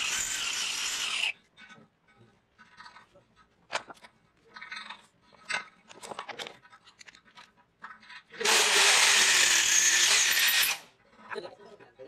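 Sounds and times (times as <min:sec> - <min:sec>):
drill bit scraping metal: 0:00.0 - 0:01.3
electric drill running: 0:00.0 - 0:01.3, 0:08.4 - 0:10.9.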